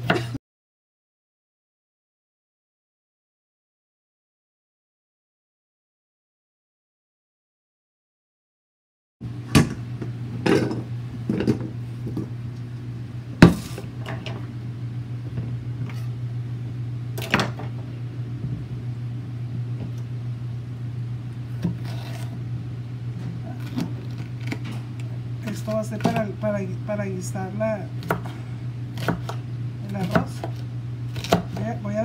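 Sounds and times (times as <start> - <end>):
low electrical appliance hum: 0.0 - 0.4, 9.2 - 32.0.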